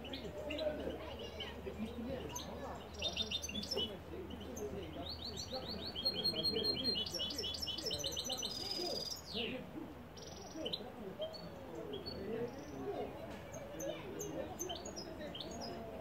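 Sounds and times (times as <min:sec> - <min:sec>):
goldfinch singing: 0:00.0 - 0:09.5.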